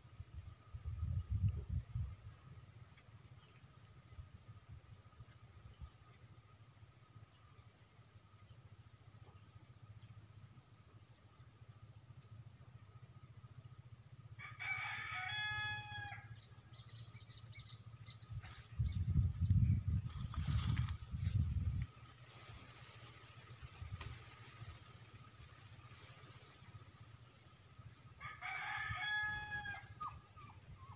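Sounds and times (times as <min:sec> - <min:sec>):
high drone of insects: 0:00.0 - 0:30.9
rooster crowing: 0:14.4 - 0:16.4, 0:28.2 - 0:30.9.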